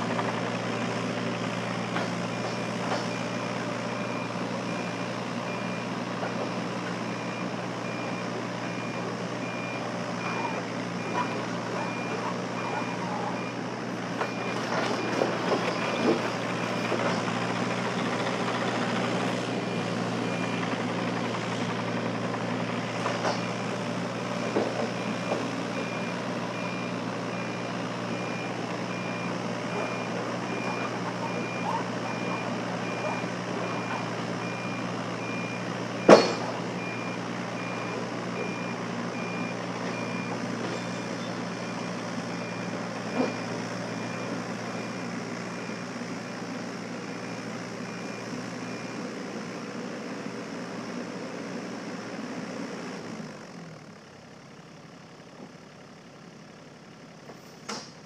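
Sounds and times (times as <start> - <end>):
diesel engine running: 0.0 - 58.0
travel alarm beeping: 7.1 - 13.6, 24.9 - 41.9, 42.5 - 45.0.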